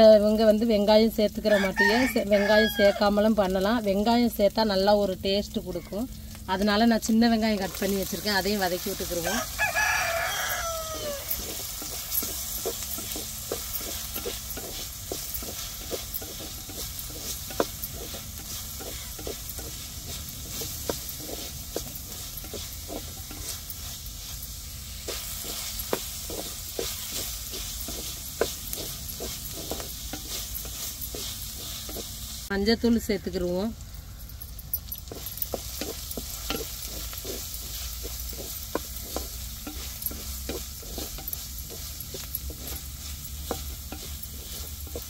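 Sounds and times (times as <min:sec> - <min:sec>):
shallots sizzling in hot oil: 0:00.0 - 0:45.0
wooden spatula scraping a pot: 0:07.5 - 0:32.5, 0:34.7 - 0:45.0.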